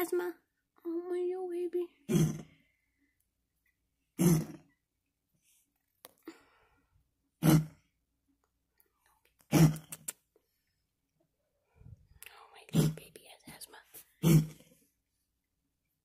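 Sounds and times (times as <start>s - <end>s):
cat hacking coughs: 4.2s - 4.6s, 7.4s - 7.8s, 9.5s - 9.9s, 14.2s - 14.6s.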